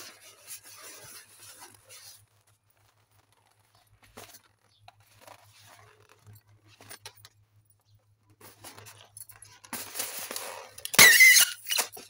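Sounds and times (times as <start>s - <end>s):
latex balloon rustling and rubbing: 0.0s - 7.4s.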